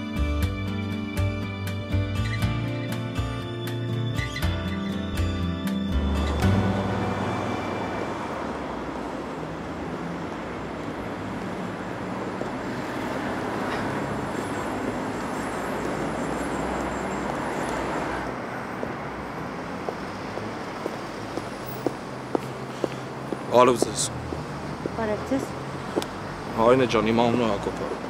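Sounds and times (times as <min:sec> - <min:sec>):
city street traffic hum: 0:00.0 - 0:28.0
footsteps on pavement: 0:19.7 - 0:26.2.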